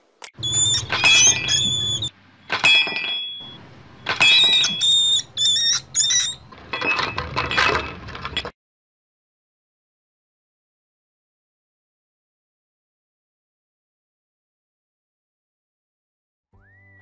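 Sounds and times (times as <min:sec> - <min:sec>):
rat squealing: 0:00.3 - 0:02.1, 0:04.2 - 0:07.0.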